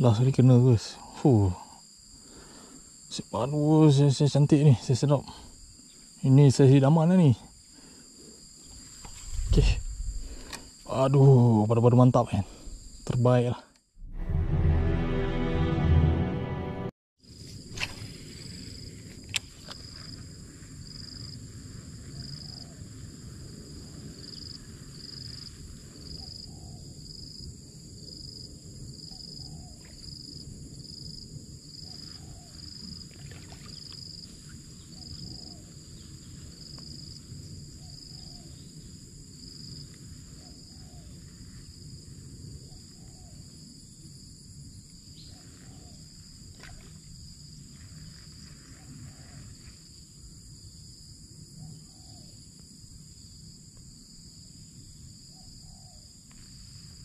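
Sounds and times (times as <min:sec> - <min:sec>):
insects buzzing: 0:00.0 - 0:13.8, 0:17.2 - 0:57.0
insect chirping: 0:00.0 - 0:14.0, 0:17.2 - 0:57.0
low rushing noise: 0:09.1 - 0:10.6, 0:14.0 - 0:16.9.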